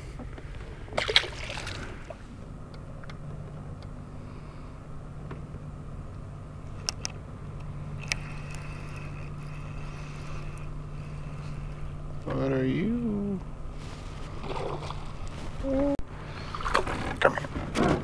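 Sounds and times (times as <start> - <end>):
electric trolling motor hum: 1.6 - 15.3.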